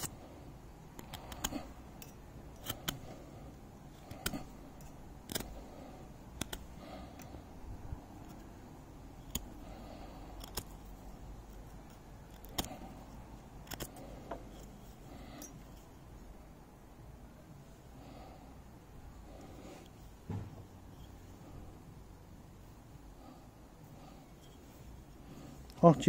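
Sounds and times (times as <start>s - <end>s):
knife carving wood clicks: 0.9s - 3.2s, 4.0s - 5.7s, 6.3s - 7.3s, 9.2s - 9.6s, 10.3s - 10.9s, 11.8s - 12.8s, 13.6s - 14.7s
knife scraping wood: 1.0s - 3.4s, 4.0s - 6.9s, 9.2s - 15.9s.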